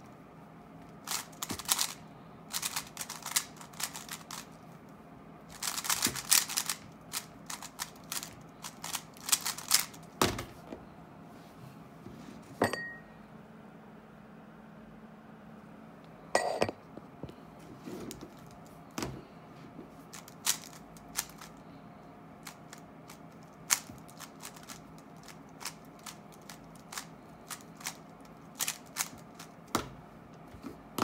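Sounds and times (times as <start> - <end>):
plastic puzzle cube clicking: 5.5 - 10.0.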